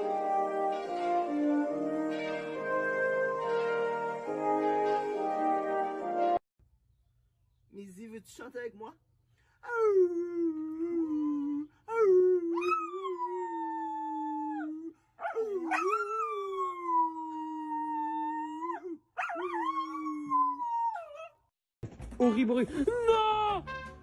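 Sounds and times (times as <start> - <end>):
man howling: 9.6 - 21.1
dog howling: 9.7 - 21.3.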